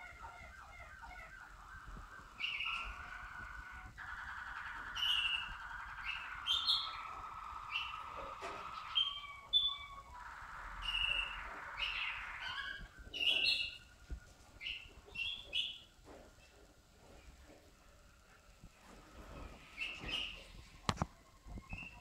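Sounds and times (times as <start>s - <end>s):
canary singing: 0.0s - 16.0s, 19.6s - 20.7s.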